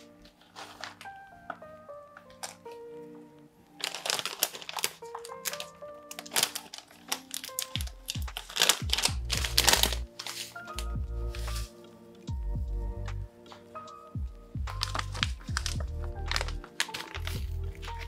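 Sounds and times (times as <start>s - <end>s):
plastic packet crinkling: 0.0s - 2.8s, 3.7s - 10.8s, 14.7s - 18.0s
background music: 0.0s - 18.0s.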